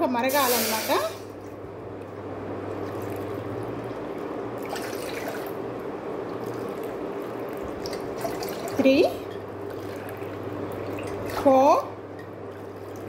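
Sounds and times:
steady low hum: 0:00.0 - 0:13.0
water pouring into steel pot: 0:04.6 - 0:05.6.

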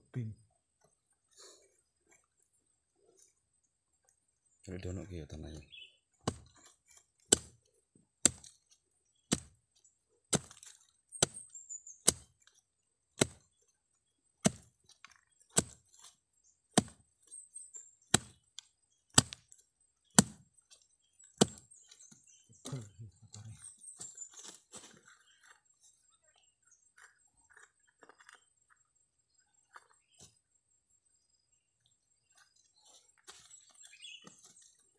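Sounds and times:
machete chopping into soil: 0:06.2 - 0:07.6, 0:08.2 - 0:08.6, 0:09.3 - 0:09.6, 0:10.3 - 0:11.5, 0:12.1 - 0:12.4, 0:13.2 - 0:13.4, 0:14.4 - 0:14.8, 0:15.5 - 0:16.2, 0:16.8 - 0:17.0, 0:18.1 - 0:18.4, 0:19.1 - 0:19.5, 0:20.1 - 0:20.5, 0:21.4 - 0:21.9.

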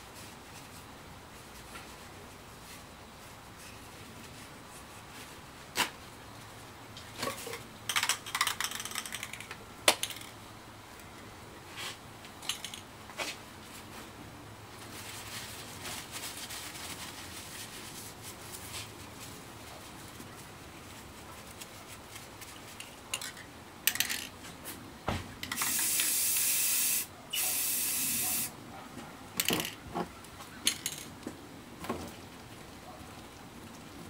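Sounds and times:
spray paint can hissing: 0:25.5 - 0:28.5
handling clicks and knocks: 0:29.4 - 0:32.1.

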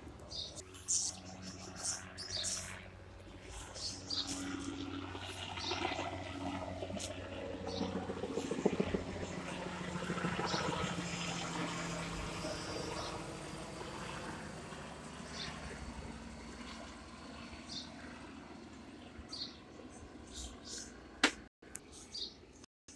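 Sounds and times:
helicopter flying overhead: 0:00.0 - 0:21.5.

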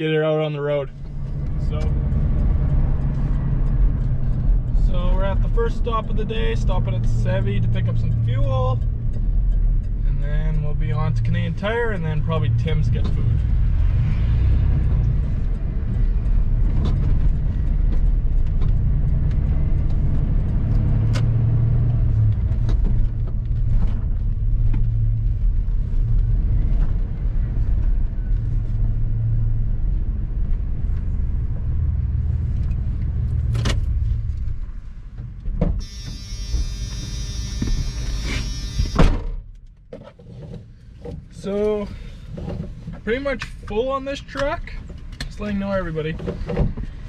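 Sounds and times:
truck engine and road noise: 0:00.0 - 0:47.0
warning chime: 0:35.8 - 0:39.0.

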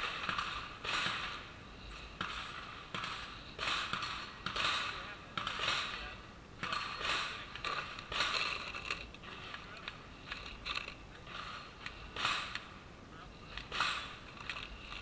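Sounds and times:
rifle cartridges clinking: 0:00.0 - 0:12.8, 0:13.4 - 0:15.0.

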